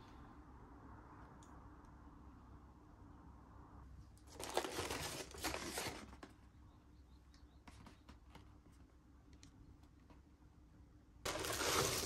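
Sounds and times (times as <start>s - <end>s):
packaging rustling and crinkling: 4.3s - 6.4s, 11.3s - 12.0s.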